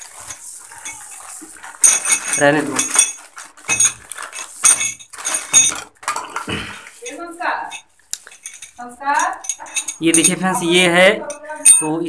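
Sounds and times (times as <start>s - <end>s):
brass fittings clinking: 0.0s - 12.0s
person speaking: 8.8s - 12.0s.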